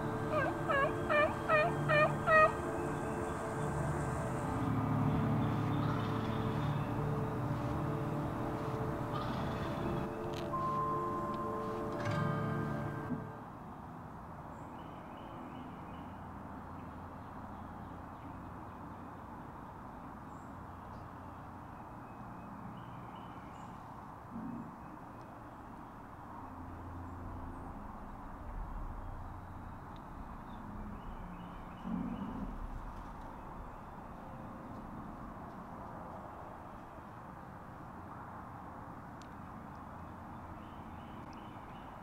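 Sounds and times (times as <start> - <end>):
distant songbirds chirping: 0.0 - 13.4, 20.3 - 37.5, 39.2 - 42.0.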